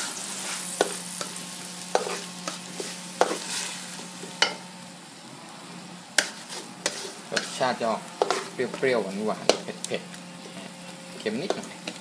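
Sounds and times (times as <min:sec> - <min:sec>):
spatula scraping a pan: 0:00.0 - 0:04.6, 0:06.2 - 0:09.8
sauce sizzling in a pan: 0:00.0 - 0:12.0.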